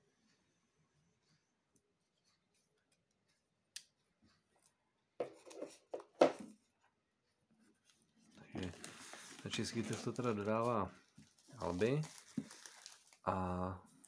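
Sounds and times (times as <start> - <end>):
plastic wrap crinkling: 7.8 - 13.4.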